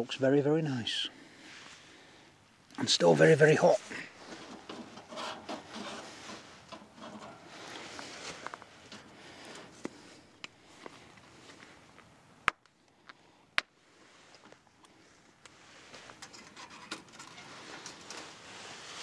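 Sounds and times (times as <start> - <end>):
rustling in dry leaves: 7.4 - 11.9, 17.4 - 19.0.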